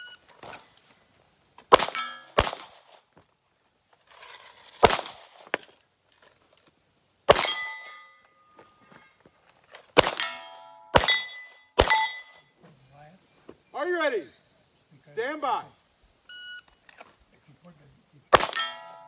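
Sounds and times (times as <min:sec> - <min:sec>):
pistol shots: 0:01.7 - 0:03.0, 0:04.8 - 0:05.5, 0:07.3 - 0:08.0, 0:10.0 - 0:12.3, 0:18.3 - 0:19.0
steel target ringing: 0:01.9 - 0:02.4, 0:07.4 - 0:08.5, 0:10.1 - 0:12.5, 0:18.4 - 0:19.0.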